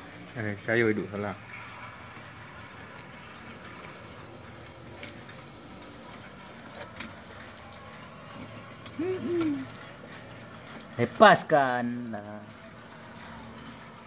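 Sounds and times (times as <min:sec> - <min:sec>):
crickets chirring: 0:00.0 - 0:14.0
low two-part hoot-like call: 0:08.9 - 0:09.9.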